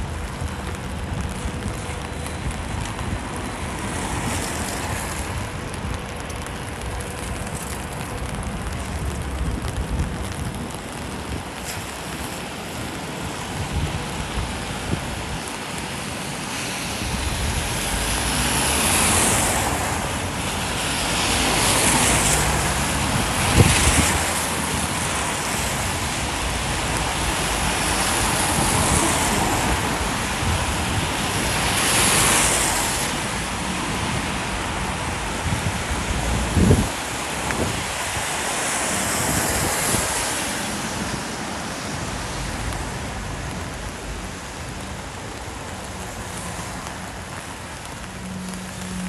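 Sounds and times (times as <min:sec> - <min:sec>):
rain: 0:00.0 - 0:49.0
wind on microphone: 0:21.3 - 0:43.9.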